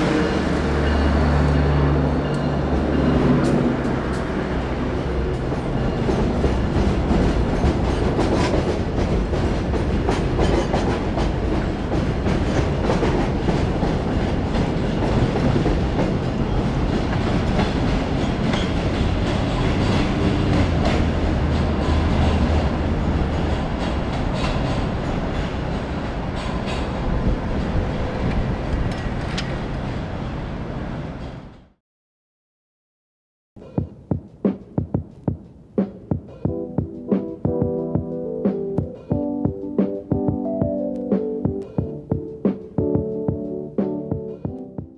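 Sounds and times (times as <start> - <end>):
train wheels clacking over rail joints: 5.2 - 29.7.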